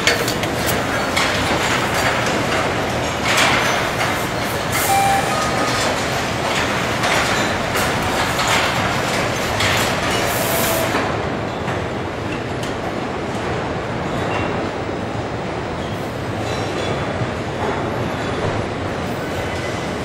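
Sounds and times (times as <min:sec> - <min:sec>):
brief high tones: 0:04.8 - 0:06.0.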